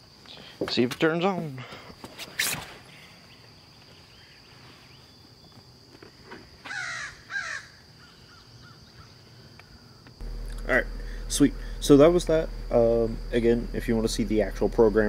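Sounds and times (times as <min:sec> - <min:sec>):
crow cawing: 0:06.7 - 0:08.4.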